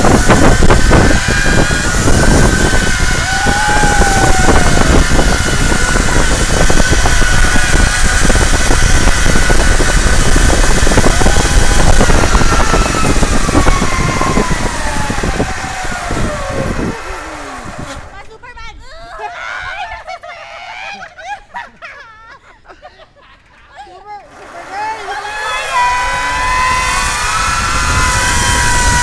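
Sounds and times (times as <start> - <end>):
wind rushing on microphone: 0.0 - 18.2, 24.8 - 29.0
zipline pulleys whining: 0.0 - 21.8, 24.1 - 29.0.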